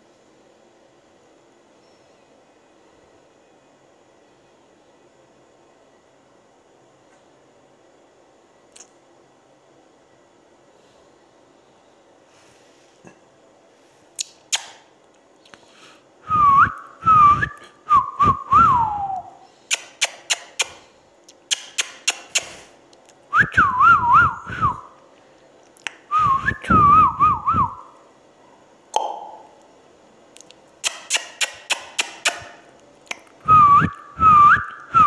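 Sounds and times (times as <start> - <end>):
sharp clicks: 19.7 - 22.6, 30.4 - 33.3.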